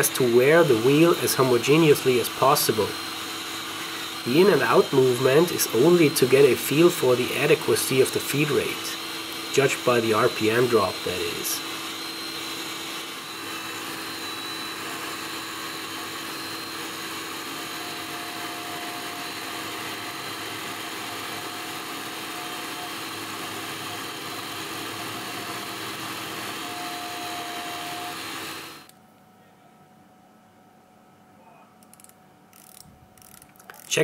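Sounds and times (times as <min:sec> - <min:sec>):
grinder grinding hum with whine: 0:00.0 - 0:29.6.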